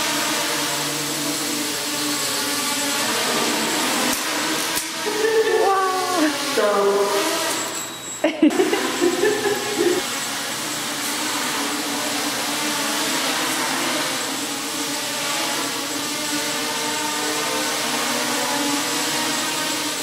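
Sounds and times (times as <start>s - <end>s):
drones buzzing whine: 0.0s - 20.0s.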